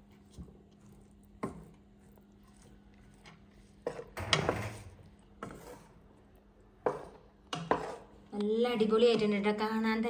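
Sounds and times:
spatula scraping a pot: 0.8s - 6.1s, 6.8s - 8.2s.

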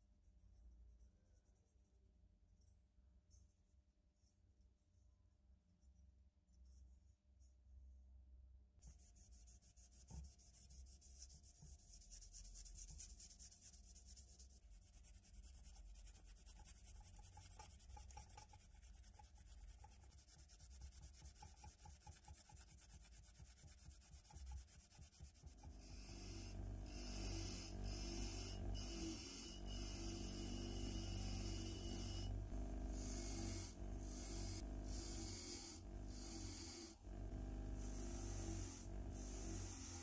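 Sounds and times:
bench grinder with wire brush: 15.0s - 40.0s.

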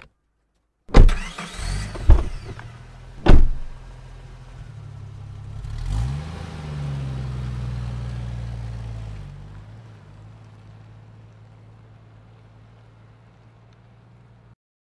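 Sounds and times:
car door slamming: 0.9s - 3.9s
car engine revving: 0.9s - 13.4s.

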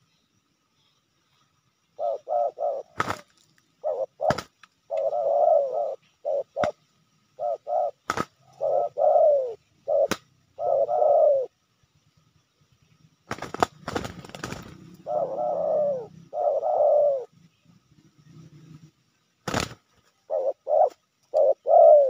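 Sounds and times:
doves cooing: 1.9s - 11.6s, 13.3s - 22.0s
wings flapping: 3.0s - 3.5s, 4.2s - 4.7s, 8.0s - 8.4s, 13.3s - 15.0s, 19.4s - 20.1s.

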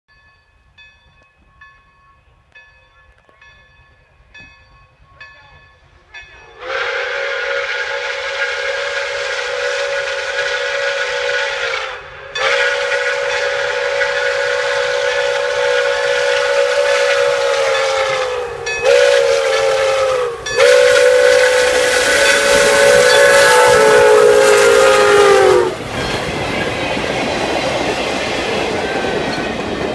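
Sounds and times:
train passing rumble: 0.7s - 29.9s
steam whistle blasts: 6.4s - 25.9s
wheels clickety-clack: 25.8s - 29.9s.

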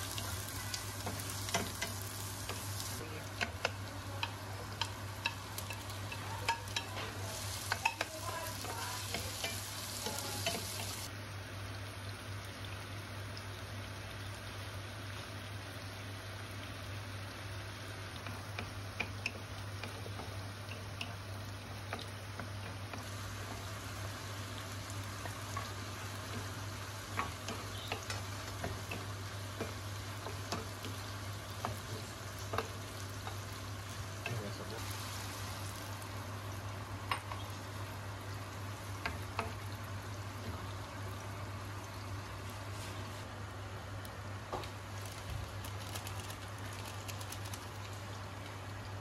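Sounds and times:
food sizzling: 0.0s - 49.0s
spatula tapping a pan: 1.0s - 2.6s, 3.3s - 10.9s, 18.2s - 21.2s, 21.8s - 23.7s, 25.1s - 33.6s.

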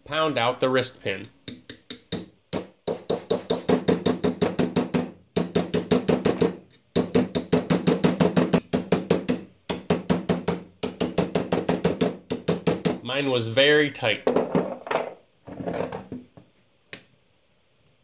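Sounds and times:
hammer tapping steel punch: 1.4s - 13.0s.

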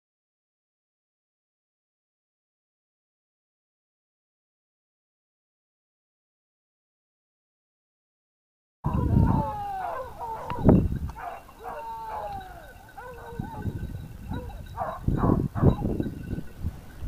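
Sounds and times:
hounds baying: 8.9s - 17.0s.

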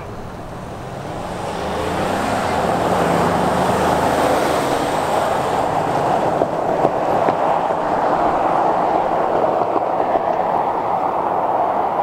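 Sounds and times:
car engine driving past: 0.0s - 12.0s
jet engines roaring: 0.0s - 12.0s.

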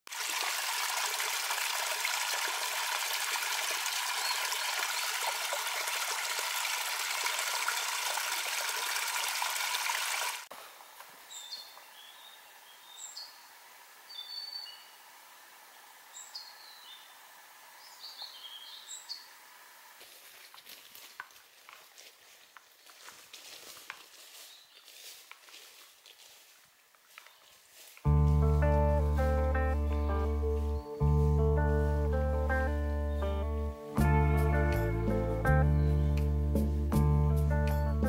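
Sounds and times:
stream splashing over waterfall: 0.1s - 10.6s.

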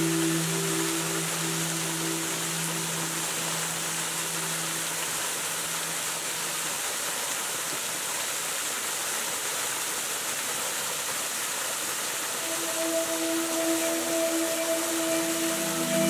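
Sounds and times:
held musical note: 0.0s - 6.0s, 12.2s - 16.0s
music: 0.0s - 6.1s, 12.3s - 16.0s
waterfall rushing and splashing: 0.0s - 16.0s.

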